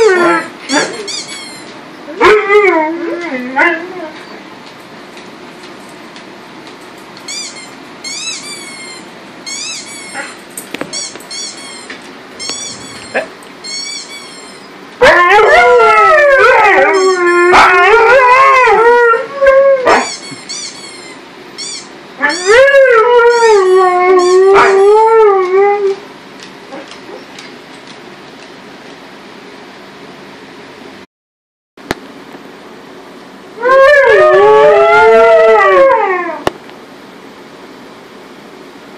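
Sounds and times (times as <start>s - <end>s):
dog howling: 0.0s - 1.3s, 2.1s - 4.4s, 13.9s - 20.2s, 22.2s - 26.0s, 33.6s - 36.5s.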